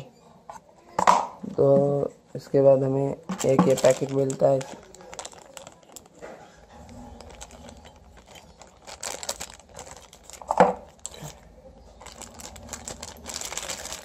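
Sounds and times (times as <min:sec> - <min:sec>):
plastic bag crinkling: 0:03.2 - 0:14.0.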